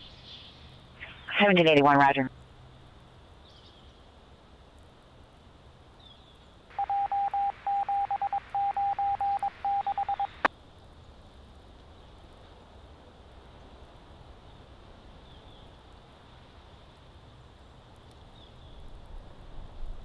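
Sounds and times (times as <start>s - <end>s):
faint radio hiss: 0.0s - 6.1s, 6.7s - 18.0s
morse code beeps on radio: 6.7s - 10.5s
radio click: 8.1s - 10.5s.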